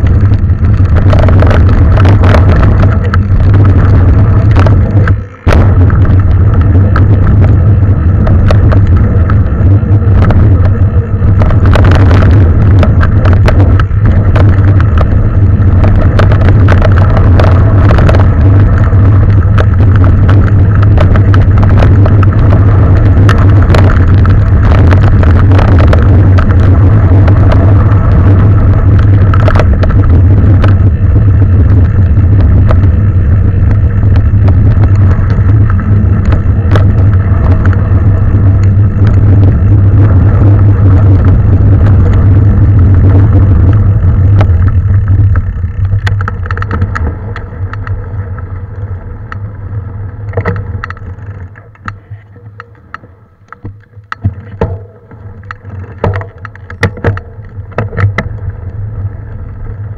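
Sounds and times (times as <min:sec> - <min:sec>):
wind buffeting microphone: 0:00.0 - 0:52.0
bike rattling over rough ground: 0:00.0 - 0:59.9.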